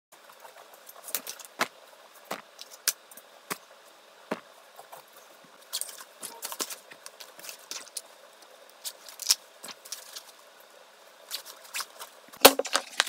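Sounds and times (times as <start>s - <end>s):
small hard items clicking down: 12.4s - 13.0s.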